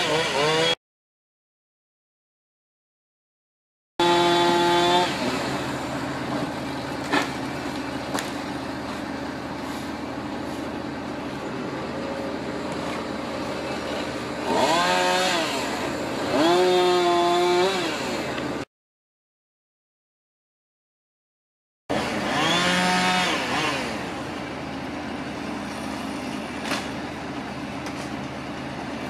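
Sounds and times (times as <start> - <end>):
chainsaw revving: 0.0 - 0.8, 4.0 - 5.9, 14.1 - 18.6, 21.9 - 24.3.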